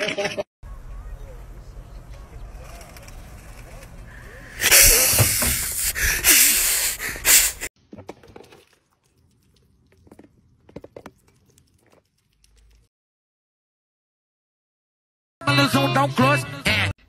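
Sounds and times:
animals eating from a plate: 0:01.0 - 0:04.5, 0:08.0 - 0:12.9
rushing hissing noise bursts: 0:04.5 - 0:07.7.

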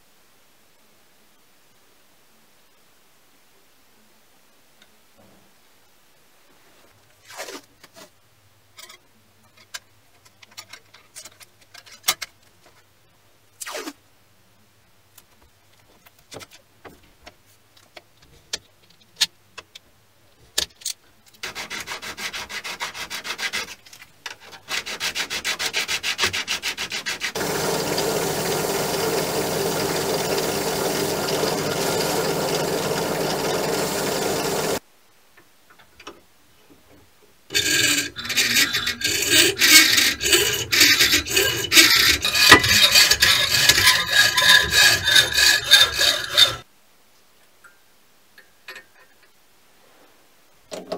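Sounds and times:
hacksaw cutting brass rod: 0:24.7 - 0:34.8, 0:37.5 - 0:46.6
wire brush wheel on steel: 0:24.7 - 0:34.8, 0:37.5 - 0:46.7
short rubbing strokes: 0:37.5 - 0:46.6.

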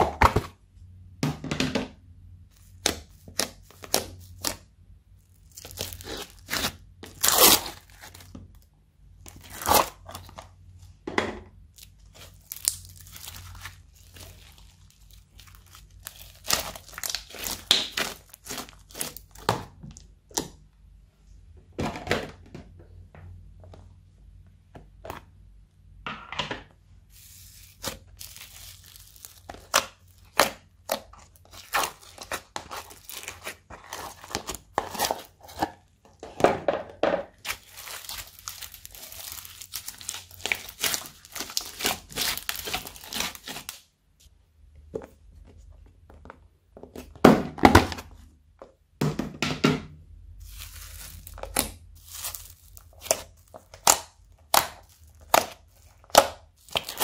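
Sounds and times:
sticky slime pops and crackles: 0:51.3 - 0:57.0.

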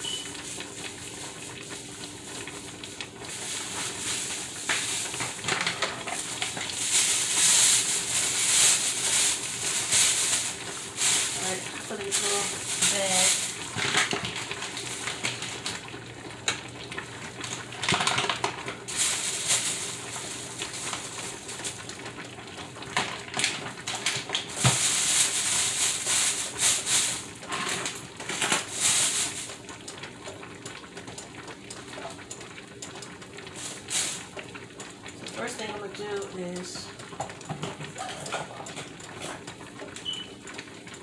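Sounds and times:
plastic bag crinkling: 0:00.0 - 0:16.0, 0:16.9 - 0:29.7.

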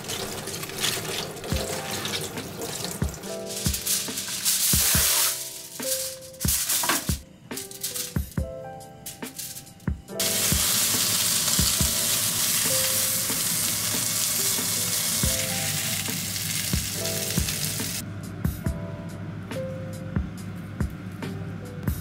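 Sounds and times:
food sizzling in frying pan: 0:00.0 - 0:07.2, 0:10.2 - 0:18.0
background music with soft beat: 0:00.8 - 0:22.0.

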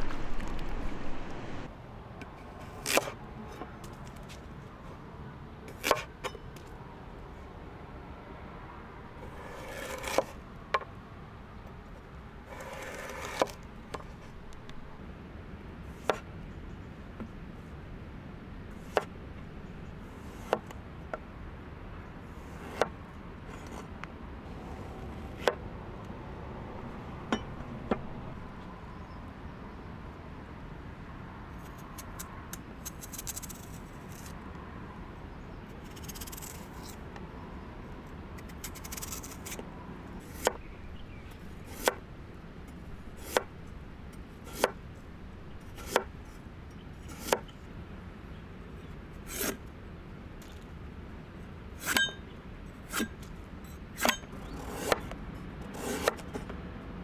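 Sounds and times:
knife scraping and rustling: 0:09.2 - 0:10.4, 0:12.5 - 0:14.8, 0:23.5 - 0:24.0, 0:32.8 - 0:34.4, 0:35.8 - 0:37.1, 0:38.5 - 0:39.6, 0:47.0 - 0:47.6, 0:49.2 - 0:49.6, 0:51.8 - 0:52.2, 0:52.9 - 0:56.5.

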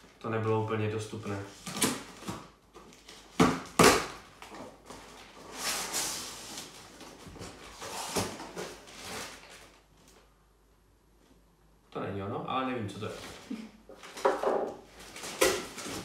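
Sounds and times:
cardboard rustling: 0:01.2 - 0:10.2, 0:13.0 - 0:16.0.

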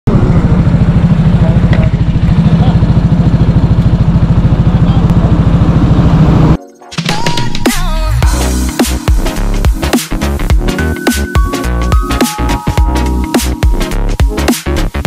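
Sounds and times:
motorcycle engine idling: 0:00.1 - 0:06.4.

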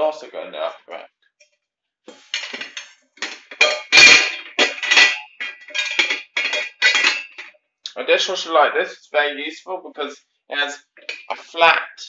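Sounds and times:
dish racks and dishes clattering: 0:02.2 - 0:07.5, 0:11.0 - 0:11.4.

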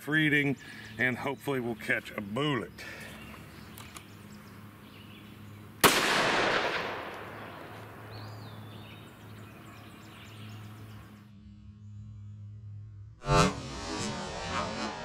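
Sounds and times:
pistol shot with echo: 0:05.8 - 0:08.1.

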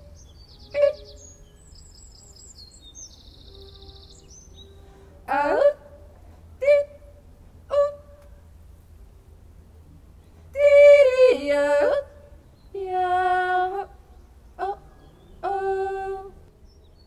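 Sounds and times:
woman yodeling: 0:00.7 - 0:01.2, 0:05.2 - 0:08.2, 0:10.5 - 0:12.2, 0:14.6 - 0:16.4.

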